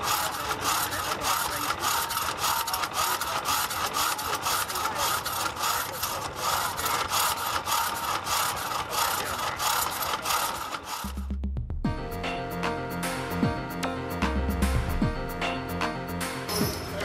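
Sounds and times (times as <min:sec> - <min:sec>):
drag saw rasping through log: 0:00.0 - 0:11.3.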